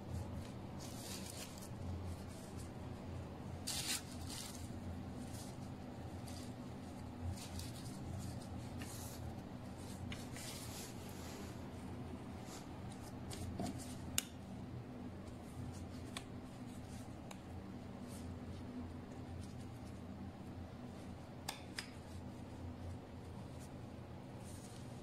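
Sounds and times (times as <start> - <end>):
steady low hum: 0.0 - 25.0
bread and paper rustling: 0.1 - 14.2, 22.0 - 25.0.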